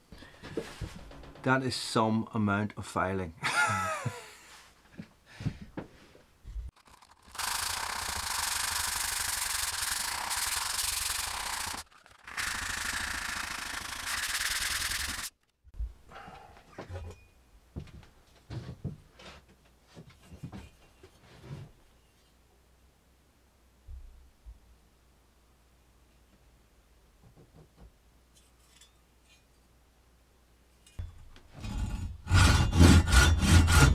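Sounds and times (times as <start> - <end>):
sandpaper rasping on steel blade: 6.8 - 15.3, 31.6 - 33.9
saw cutting wood: 6.8 - 15.3, 31.6 - 33.9.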